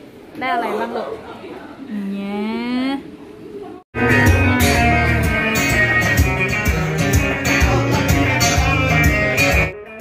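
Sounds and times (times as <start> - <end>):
live band music: 4.0 - 10.0.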